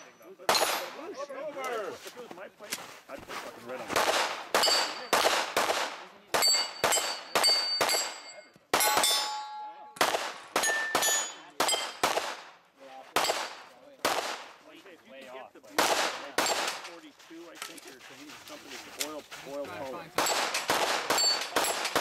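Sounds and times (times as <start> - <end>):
carbine gunshots: 3.9 - 9.4, 10.0 - 14.6, 15.7 - 16.9, 20.2 - 22.0
steel plate ringing: 6.4 - 10.0.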